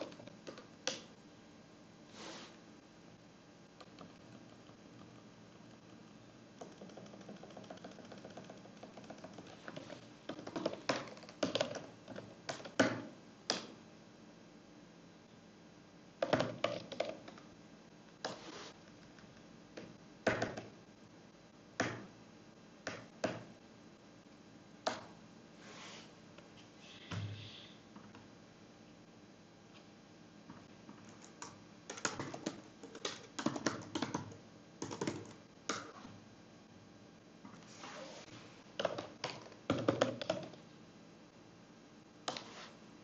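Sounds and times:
keyboard typing: 6.6s - 12.8s, 30.9s - 35.9s.

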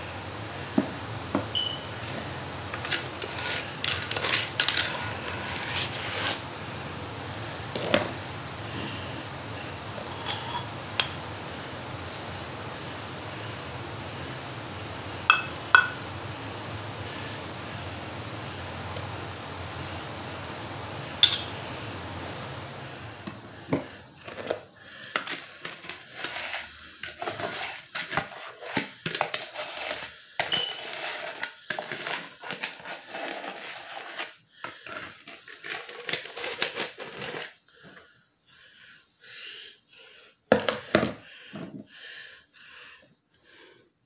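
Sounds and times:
steady hiss: 0.0s - 30.4s
scrub scraped in plastic bowl: 2.0s - 6.5s, 24.2s - 37.6s.

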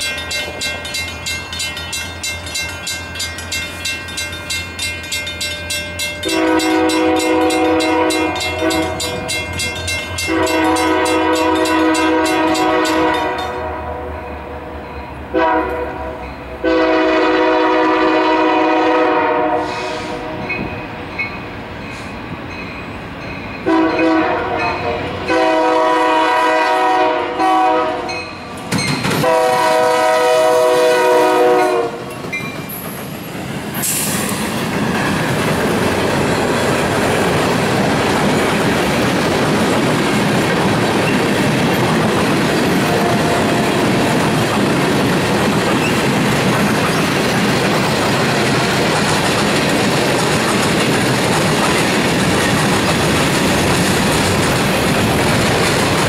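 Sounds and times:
locomotive rumble: 0.0s - 56.0s
locomotive horn blasts: 6.2s - 9.3s, 10.2s - 14.3s, 15.3s - 20.5s, 23.6s - 28.2s, 29.2s - 32.0s, 42.9s - 43.8s
wheels clattering on rails: 28.2s - 29.7s, 32.0s - 56.0s.

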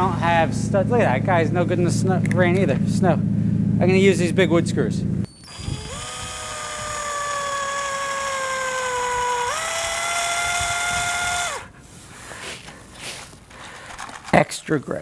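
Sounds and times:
cordless drill motor whine: 5.3s - 11.8s.

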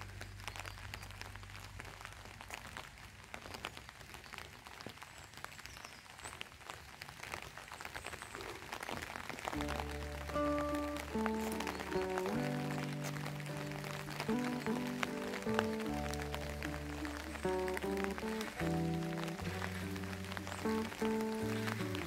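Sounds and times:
light rain falling: 0.0s - 22.0s
background music: 9.6s - 22.0s.

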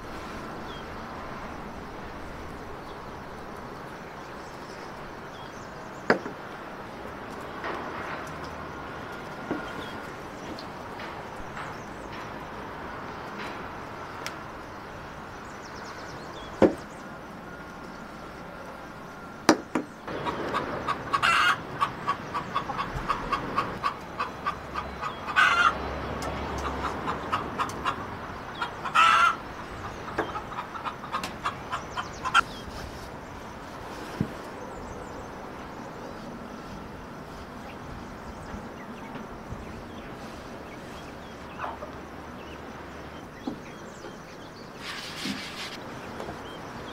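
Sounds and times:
sharp knocks: 6.1s - 6.4s, 16.6s - 16.8s
chickens clucking: 20.1s - 32.7s, 37.6s - 46.6s.

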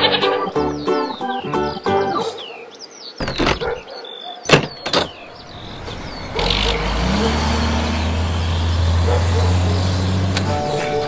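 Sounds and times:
truck engine running: 5.3s - 11.0s.

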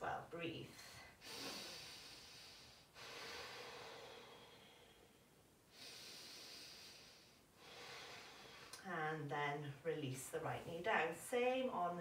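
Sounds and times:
woman breathing slowly: 0.8s - 8.8s.

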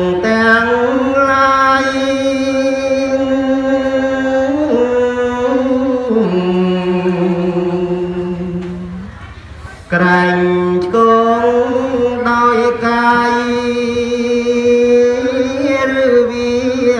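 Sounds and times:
man chanting in long notes: 9.9s - 16.9s.

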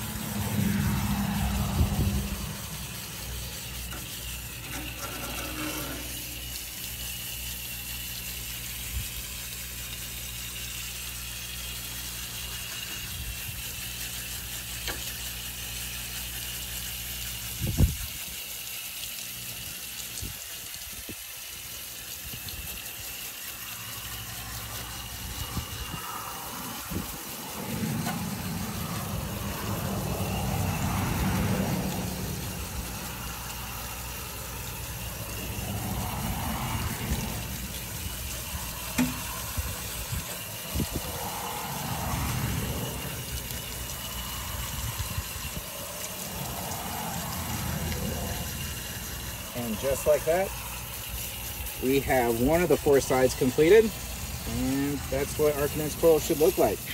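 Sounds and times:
hose water spraying on coil: 0.0s - 56.9s.

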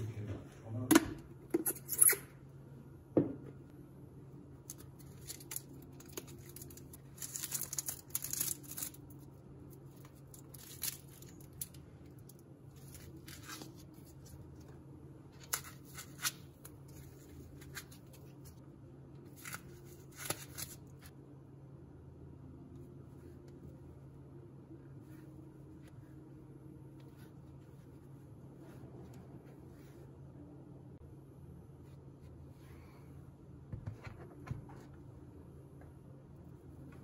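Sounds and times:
plastic film peeling and crinkling: 4.7s - 14.6s.

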